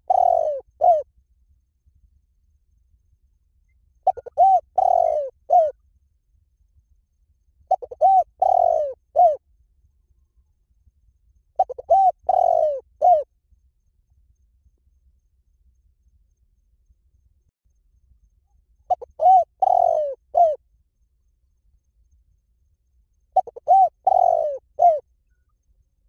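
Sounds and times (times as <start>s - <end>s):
dove cooing: 0.0s - 1.1s, 4.0s - 5.8s, 7.7s - 9.4s, 11.6s - 13.3s, 18.9s - 20.6s, 23.4s - 25.0s.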